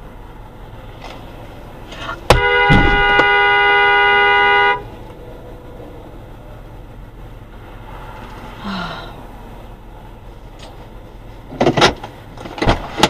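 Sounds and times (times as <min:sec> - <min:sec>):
low road noise: 0:00.0 - 0:13.0
car horn honk: 0:02.0 - 0:05.0.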